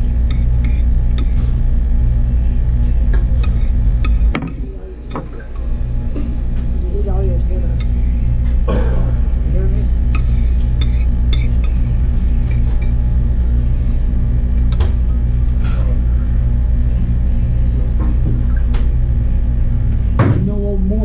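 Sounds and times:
steady low hum: 0.0 - 21.0
cutlery clinking on a plate: 10.2 - 11.8.

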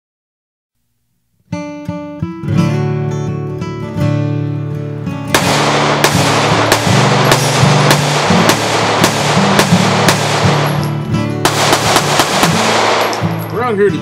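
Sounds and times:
background guitar music: 1.4 - 14.0
pistol shots: 5.3 - 13.8.

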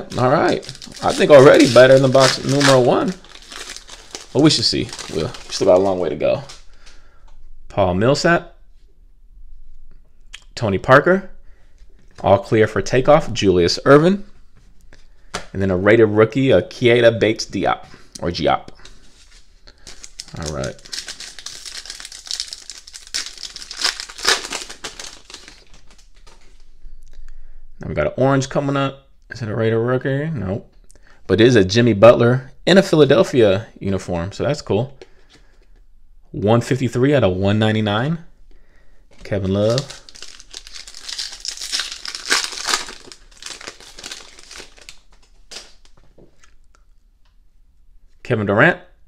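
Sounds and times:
foil wrapper crinkling and tearing: 0.0 - 6.7, 18.8 - 26.6, 39.4 - 46.0.

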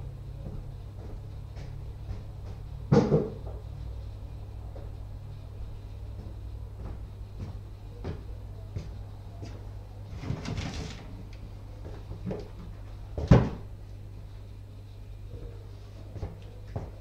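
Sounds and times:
steady low hum: 0.0 - 17.0
footsteps on tiled floor: 0.4 - 2.8, 6.0 - 9.7
loud knock of something shut: 2.9 - 3.4.

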